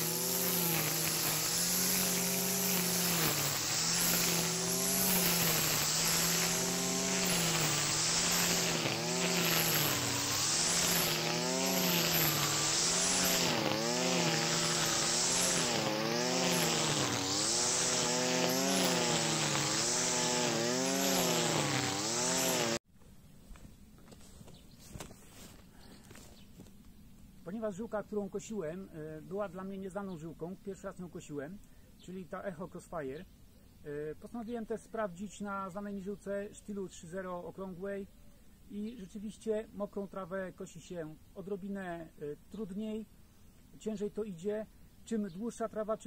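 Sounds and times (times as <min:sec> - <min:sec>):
brushcutter cutting wet grass: 0:00.0 - 0:22.8.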